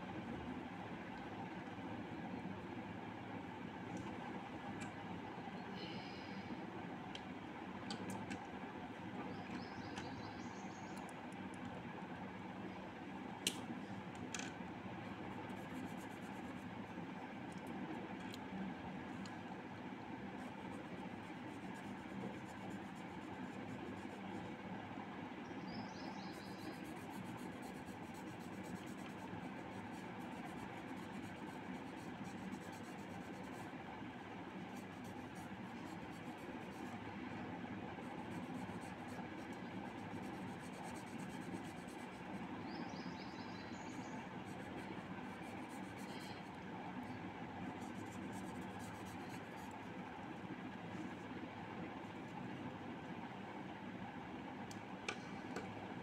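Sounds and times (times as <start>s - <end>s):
marker scratching on paper: 15.4s - 16.7s, 20.4s - 24.4s, 26.4s - 33.7s, 34.6s - 37.0s, 38.0s - 42.4s, 44.4s - 46.5s, 47.7s - 49.7s.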